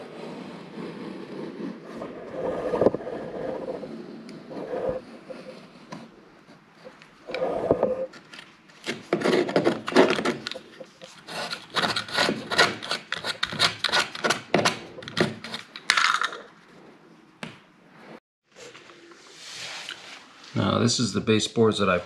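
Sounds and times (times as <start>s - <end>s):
razor blade scraping caulking: 11.0s - 14.4s.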